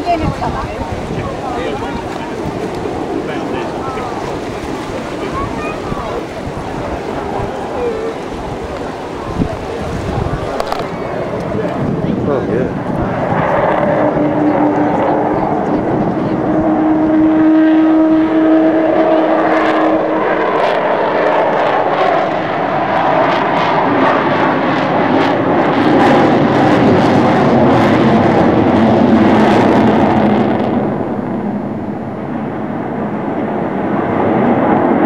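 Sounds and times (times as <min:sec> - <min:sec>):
jet aircraft roar: 0:00.0 - 0:35.0
steady low tone: 0:24.9 - 0:35.0.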